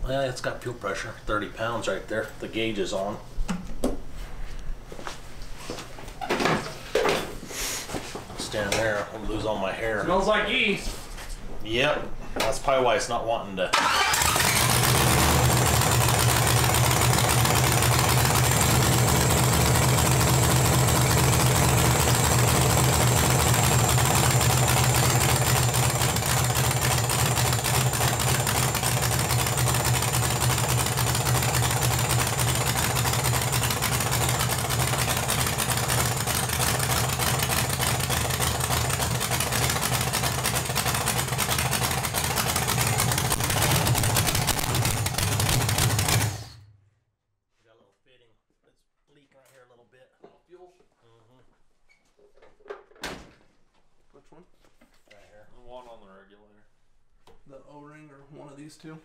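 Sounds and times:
car engine idling loudly: 14.2 - 46.5.

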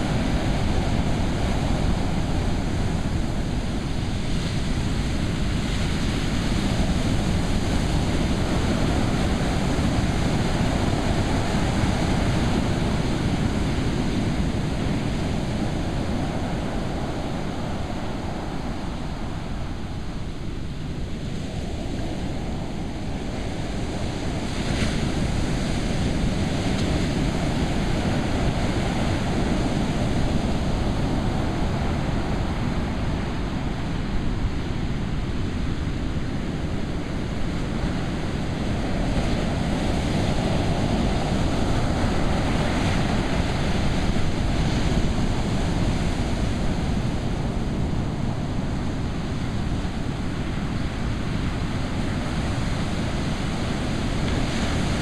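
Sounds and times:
ocean waves breaking: 0.0 - 55.0
wind buffeting microphone: 0.0 - 55.0.

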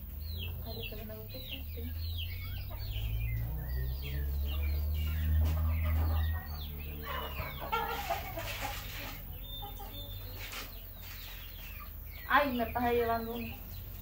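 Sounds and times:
low hum: 0.0 - 9.8
chickens clucking: 0.0 - 14.0.

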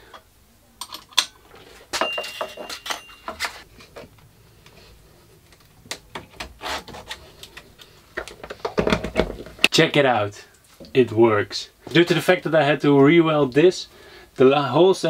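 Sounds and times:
metal ringing: 2.0 - 3.6.

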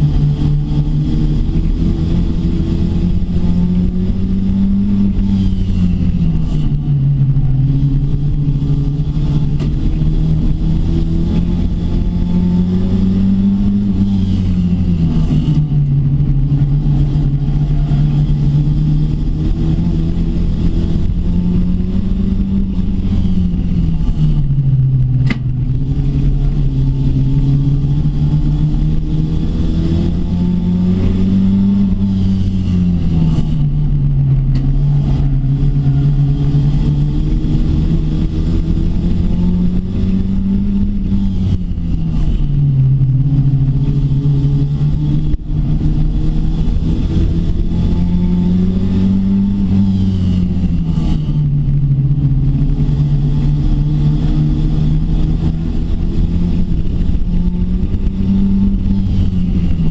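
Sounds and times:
racing car engine revving: 0.0 - 59.9
sharp click: 25.2 - 25.5.

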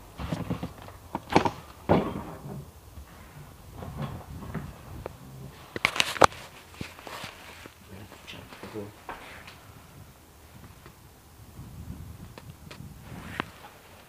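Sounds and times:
door knocks and scrapes: 0.2 - 5.6
soft scuffs: 5.5 - 9.7.

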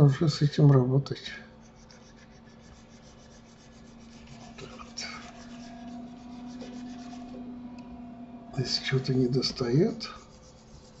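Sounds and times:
low electrical hum: 0.0 - 11.0
hand rubbing at a desk: 1.6 - 7.5, 8.7 - 11.0.

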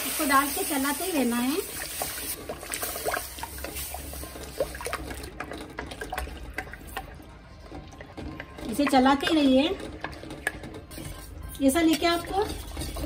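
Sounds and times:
liquid pouring and splashing: 1.7 - 8.8.

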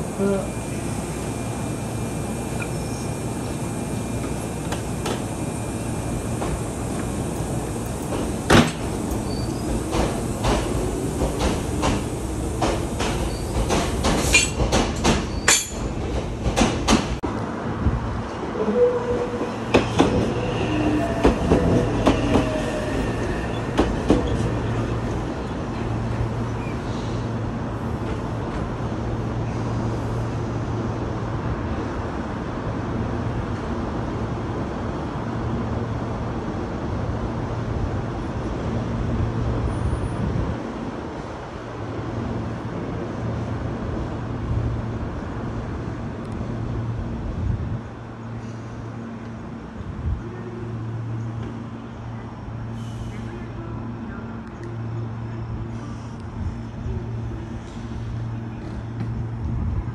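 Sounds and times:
rail cars clanking: 0.0 - 30.9, 47.9 - 59.9
electric train low hum: 0.0 - 59.9
wheel squeal: 9.1 - 9.8.

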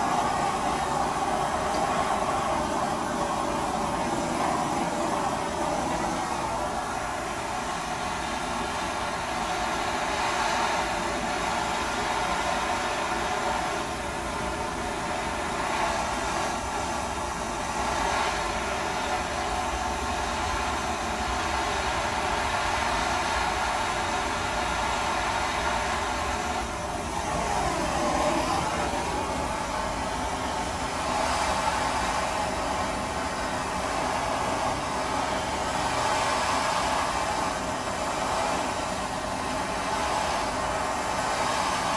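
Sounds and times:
gas blowtorch hissing: 0.0 - 41.9.

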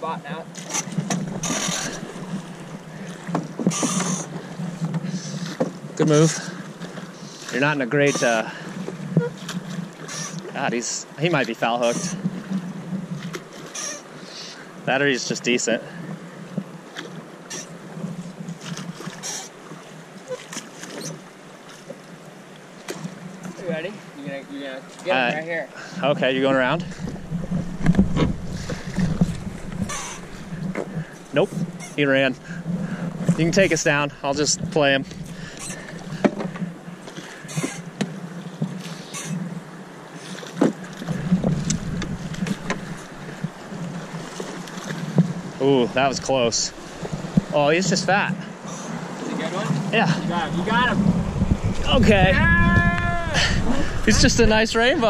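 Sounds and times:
oars splashing and knocking: 0.0 - 55.0
rushing river water: 0.0 - 55.0
wind rumble on microphone: 26.2 - 37.0, 40.6 - 55.0.

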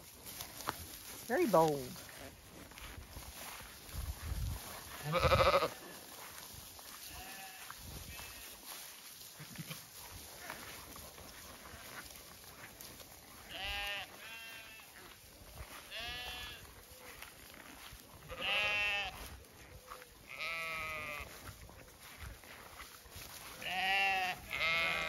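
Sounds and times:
sheep bleating: 4.9 - 6.0, 7.0 - 8.6, 13.4 - 16.7, 18.2 - 19.3, 20.2 - 21.5, 23.5 - 25.0.

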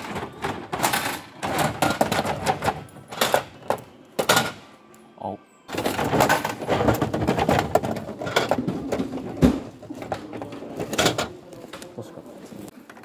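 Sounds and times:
plastic capsule clattering: 0.0 - 4.6, 5.7 - 11.4.

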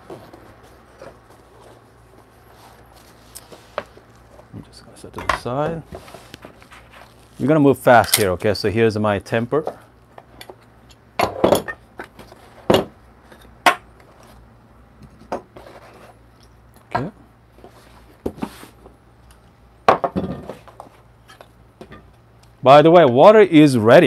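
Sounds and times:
knocks of parts on wooden table: 12.7 - 12.9, 19.9 - 20.6.

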